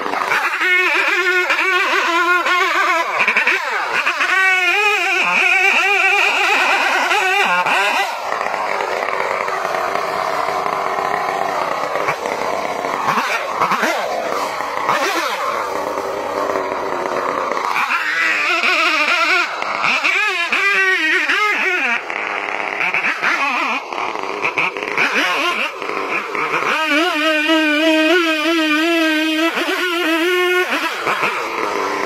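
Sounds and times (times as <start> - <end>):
chainsaw cutting wood: 0.0 - 32.0.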